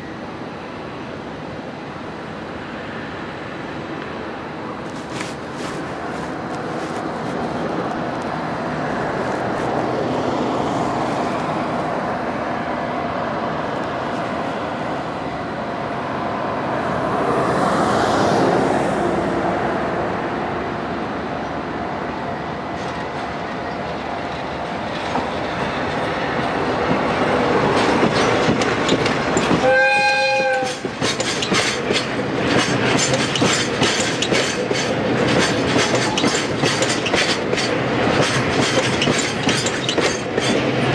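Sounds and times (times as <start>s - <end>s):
diesel locomotive engine: 0.0s - 40.9s
wheels clattering over rail joints: 22.7s - 40.9s
locomotive horn blast: 29.6s - 30.8s.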